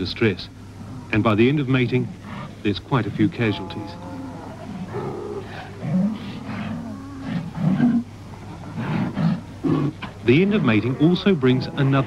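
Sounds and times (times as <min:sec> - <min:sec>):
sea lions calling: 0:01.9 - 0:12.0.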